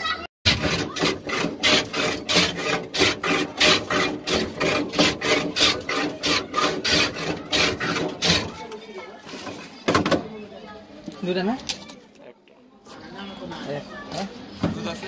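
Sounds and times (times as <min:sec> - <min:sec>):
ice shaved on blade rasping: 0:00.5 - 0:08.8.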